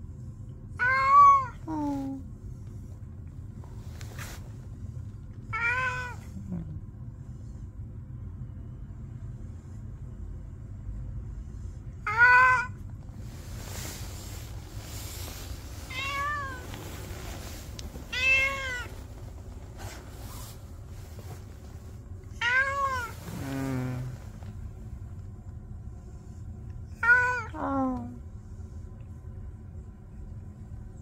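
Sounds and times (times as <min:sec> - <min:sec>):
low background hum: 0:00.0 - 0:31.0
cat meowing: 0:00.8 - 0:01.6, 0:05.5 - 0:06.3, 0:12.0 - 0:12.8, 0:15.9 - 0:16.6, 0:18.1 - 0:18.9, 0:22.4 - 0:23.2, 0:27.0 - 0:27.5.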